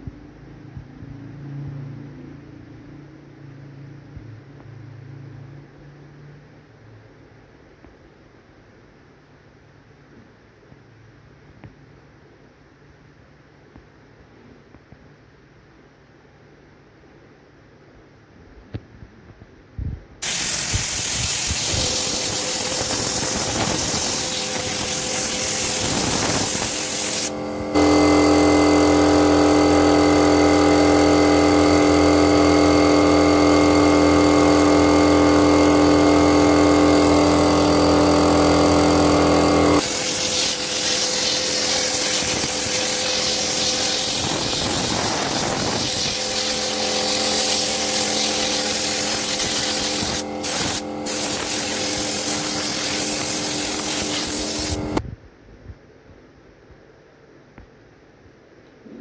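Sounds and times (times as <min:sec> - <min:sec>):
air spray gun hissing: 0:20.2 - 0:55.0
machine hum: 0:20.2 - 0:55.0.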